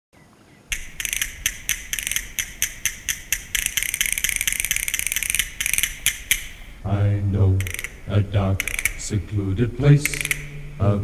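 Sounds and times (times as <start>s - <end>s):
castanets clicking: 0.7s - 6.8s, 7.6s - 9.2s, 10.0s - 10.6s.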